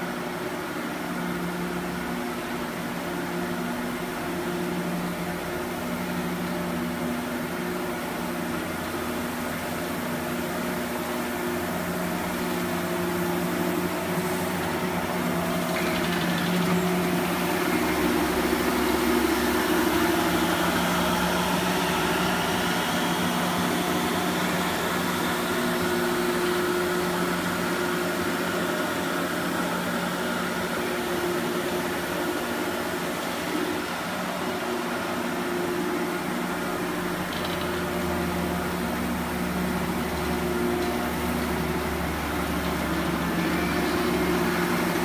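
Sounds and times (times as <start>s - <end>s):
scrubber motor hum with hiss: 5.9s - 45.0s.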